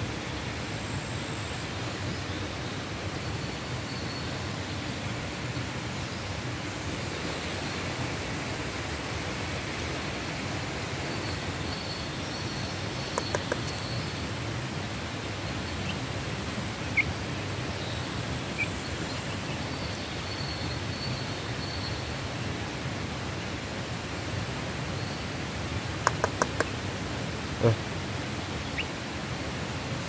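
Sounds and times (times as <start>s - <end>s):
outdoor background hiss: 0.0s - 30.0s
hen pecking grain clicks: 13.1s - 13.9s, 26.0s - 26.8s.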